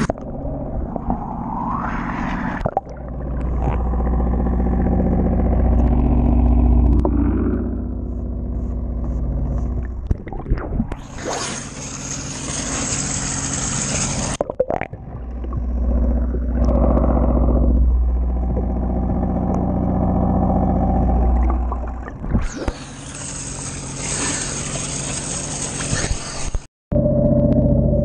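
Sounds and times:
steady low drone: 0.0s - 25.9s, 26.9s - 28.0s
muffled underwater sound: 0.0s - 28.0s
water splashing: 20.4s - 26.7s.

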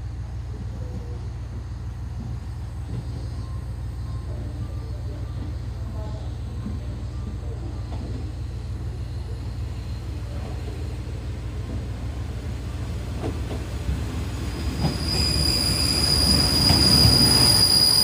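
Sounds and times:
diesel railcar rumble: 0.0s - 18.0s
high-pitched train squeal: 2.4s - 10.8s, 14.4s - 18.0s.

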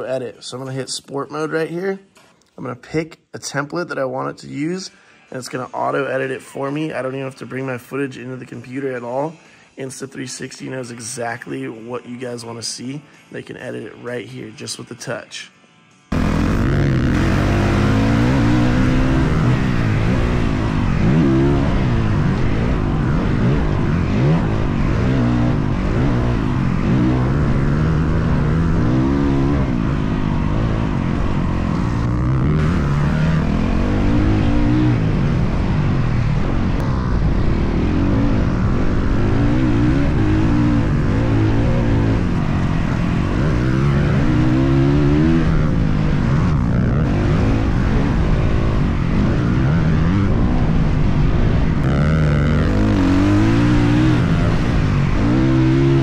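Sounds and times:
dirt bike engine revving: 16.1s - 56.0s.

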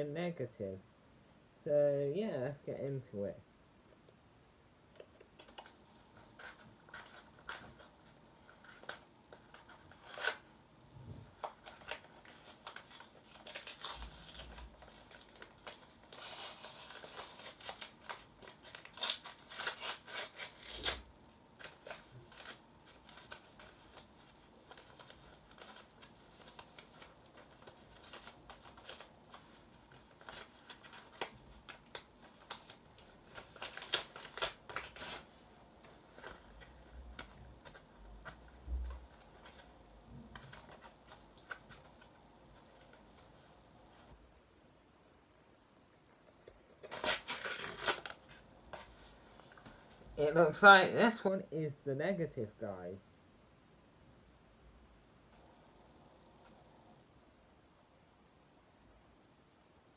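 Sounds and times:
paper rustling and tearing: 5.4s - 10.5s, 11.4s - 39.7s, 40.3s - 44.1s, 46.8s - 50.0s.

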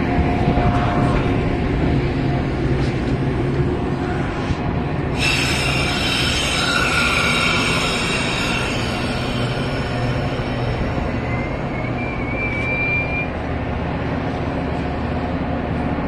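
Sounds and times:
train wheels rumbling on rails: 0.0s - 16.0s
high wheel squeal: 5.2s - 13.4s.

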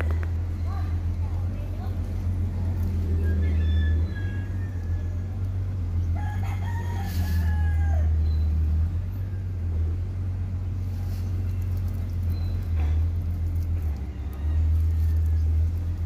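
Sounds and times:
steady low rumble: 0.0s - 16.0s
rooster crowing: 3.2s - 8.6s, 13.8s - 16.0s.

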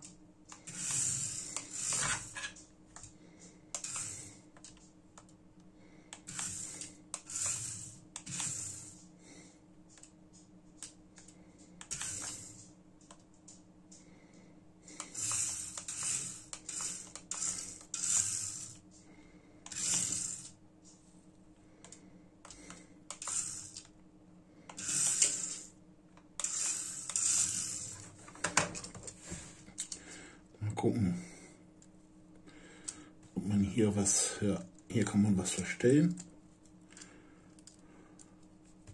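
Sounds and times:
faint low hum: 0.0s - 38.9s
toy car motor whirring: 0.6s - 2.6s, 3.8s - 4.4s, 6.2s - 9.0s, 11.8s - 12.6s, 15.0s - 18.8s, 19.7s - 20.6s, 23.1s - 23.9s, 24.7s - 25.7s, 26.4s - 28.0s.

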